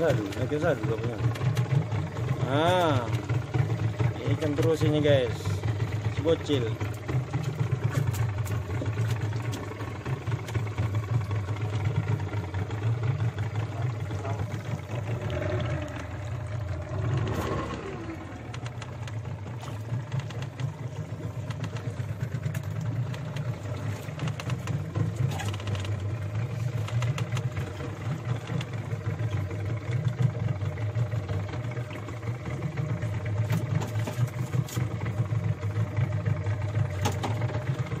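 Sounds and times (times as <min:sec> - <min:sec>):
boat engine throbbing: 0:00.0 - 0:38.0.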